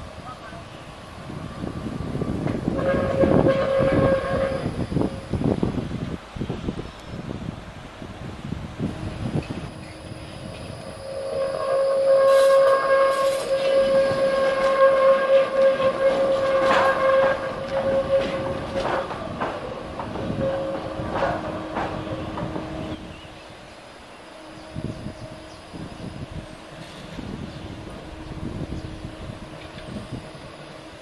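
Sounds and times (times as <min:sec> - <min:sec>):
tram whining: 0:00.0 - 0:31.0
wheels clacking over track: 0:12.5 - 0:23.1.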